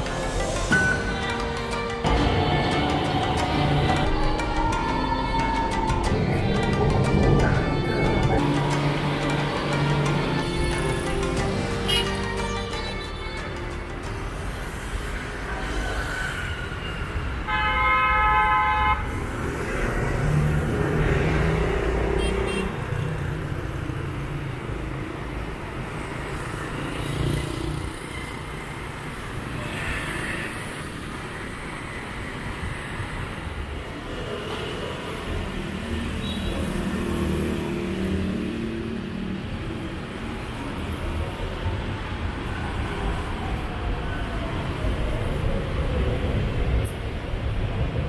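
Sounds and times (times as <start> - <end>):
motorbikes and cars passing: 6.1 - 11.0, 14.1 - 17.5, 18.7 - 48.0
vehicle horn honking: 11.9 - 12.2, 17.5 - 19.1, 22.2 - 22.8.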